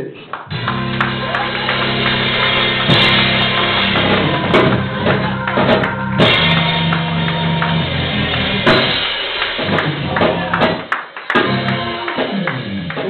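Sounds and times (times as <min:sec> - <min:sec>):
keyboard sustained chords: 0:00.5 - 0:10.8, 0:11.4 - 0:13.0
cymbal crashes: 0:00.5 - 0:12.9
drum kit: 0:00.5 - 0:13.0.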